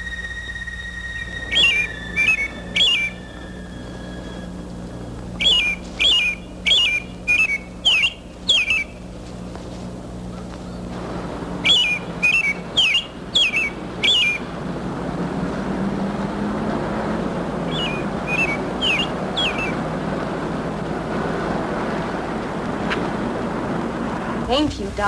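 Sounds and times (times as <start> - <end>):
small bird chirping: 0.0 - 10.9, 11.6 - 14.7, 17.5 - 20.6
steady background hiss: 0.0 - 25.0.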